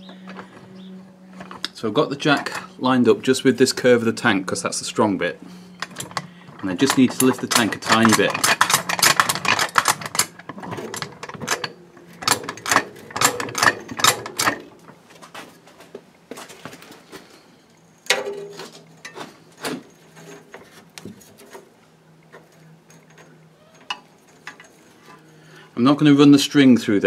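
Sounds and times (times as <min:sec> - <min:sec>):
jack metallic clicks and knocks: 0:05.8 - 0:15.0, 0:18.0 - 0:25.3.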